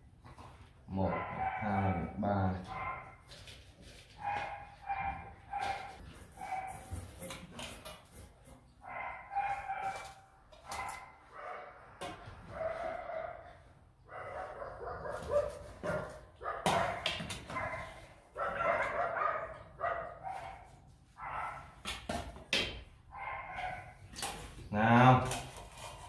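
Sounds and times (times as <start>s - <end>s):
puppies barking and whining: 1.0s - 3.3s.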